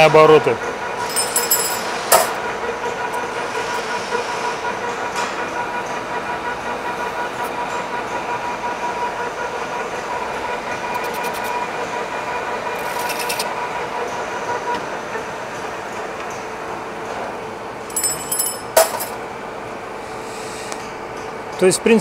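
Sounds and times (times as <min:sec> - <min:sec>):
lathe whine: 0:00.0 - 0:17.8
metal lathe rattling: 0:01.0 - 0:02.4, 0:10.4 - 0:11.7, 0:12.7 - 0:13.5.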